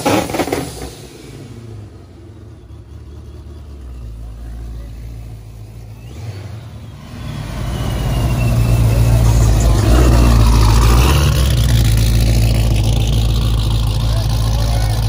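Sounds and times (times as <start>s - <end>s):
car exhaust rumble accelerating: 0.0s - 15.0s.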